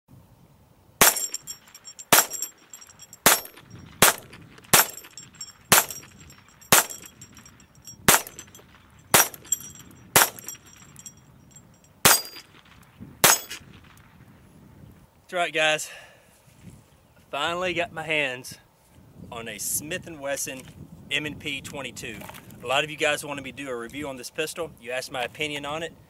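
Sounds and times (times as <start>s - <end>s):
pistol shots: 1.0s - 1.4s, 2.1s - 2.5s, 3.2s - 5.1s, 5.7s - 6.0s, 6.7s - 7.1s, 8.0s - 8.5s, 9.1s - 9.5s, 10.2s - 10.6s, 12.0s - 12.6s, 13.2s - 13.6s
steel targets ringing: 1.0s - 12.5s, 13.2s - 13.6s.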